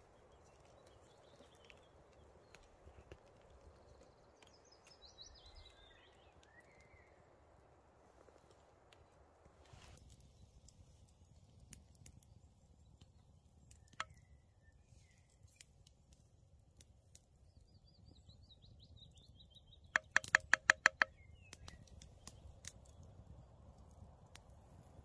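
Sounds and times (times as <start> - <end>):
songbird chirps: 0.0 - 25.0
rapid sharp clicks: 20.0 - 21.1.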